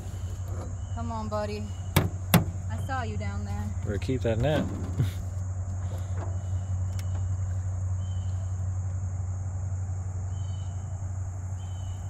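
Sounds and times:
high insect drone: 0:00.0 - 0:12.0
low motor hum: 0:00.0 - 0:12.0
faint chirps: 0:10.2 - 0:12.0.

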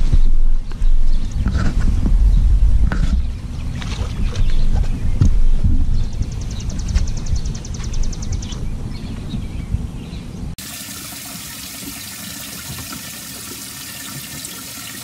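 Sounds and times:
wind rumbling on microphone: 0:00.0 - 0:10.6
aerator pouring water: 0:10.6 - 0:15.0.

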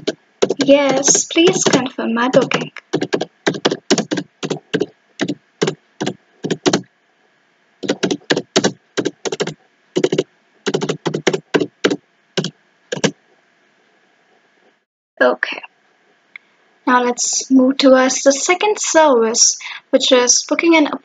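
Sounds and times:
computer keyboard typing: 0:00.0 - 0:06.8, 0:07.8 - 0:13.2.

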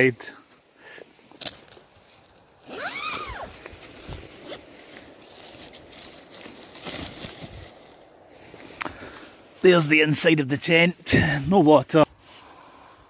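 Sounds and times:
fabric rustling: 0:01.6 - 0:08.8
tent zipper rasp: 0:02.6 - 0:04.7.

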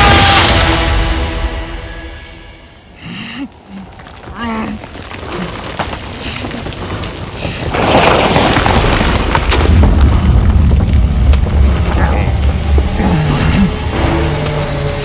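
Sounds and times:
deep rumbling boom: 0:07.9 - 0:14.8.

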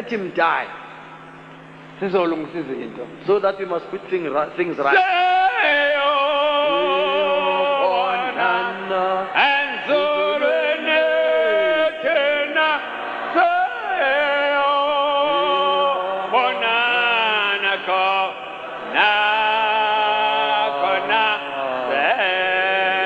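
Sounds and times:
voices singing with vibrato: 0:04.8 - 0:23.0.

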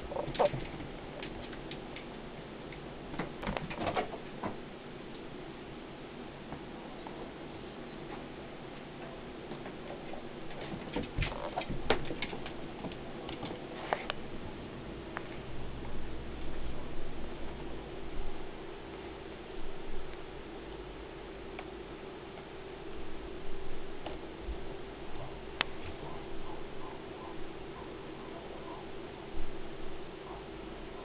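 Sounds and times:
low hum: 0:11.3 - 0:31.0.

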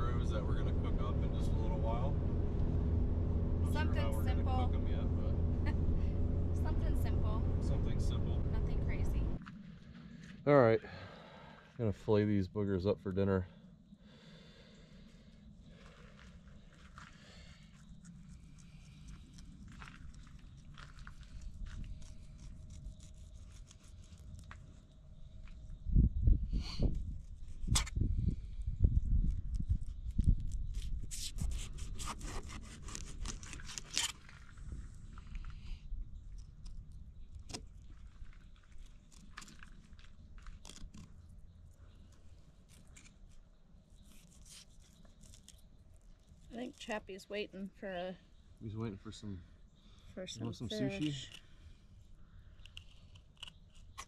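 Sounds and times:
low rumble: 0:00.0 - 0:10.5
low steady rumble: 0:00.0 - 0:43.1, 0:45.4 - 0:52.9
knife crunching and scraping fish: 0:18.1 - 0:24.8, 0:29.9 - 0:34.6, 0:37.5 - 0:41.3, 0:44.0 - 0:46.8, 0:52.7 - 0:54.0
knife scraping fish scales: 0:21.9 - 0:24.5, 0:30.7 - 0:34.3, 0:44.0 - 0:45.6.

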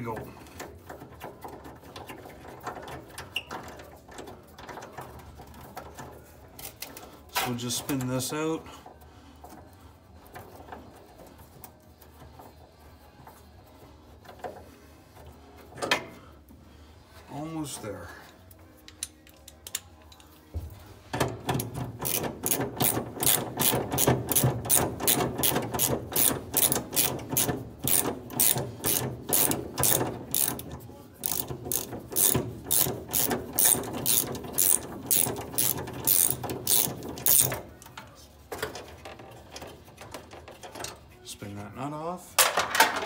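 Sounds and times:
ratchet wrench clicking: 0:21.6 - 0:37.6.

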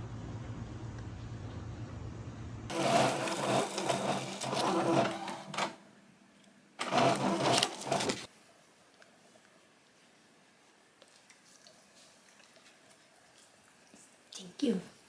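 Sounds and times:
low hum: 0:00.0 - 0:02.8
printer whirring and clicking: 0:02.7 - 0:05.8, 0:06.8 - 0:08.3.

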